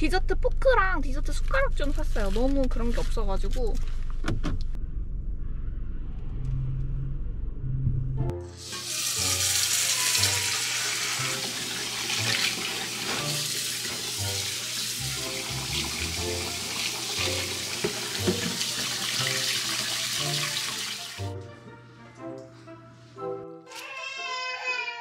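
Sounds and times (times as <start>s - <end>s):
background music: 7.7s - 24.8s
tap water splashing into steel sink: 16.7s - 21.0s.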